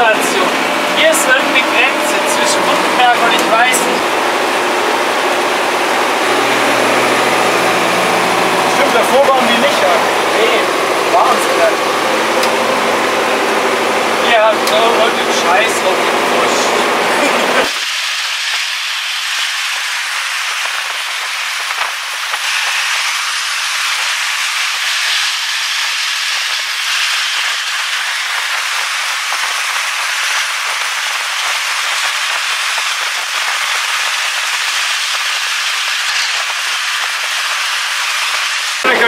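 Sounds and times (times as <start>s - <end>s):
air and road noise rushing: 0.0s - 17.9s.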